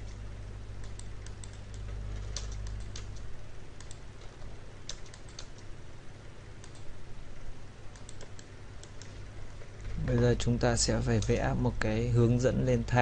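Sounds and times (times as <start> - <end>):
low steady hum: 0.0 - 13.0
keyboard typing: 0.8 - 5.7, 7.9 - 11.4.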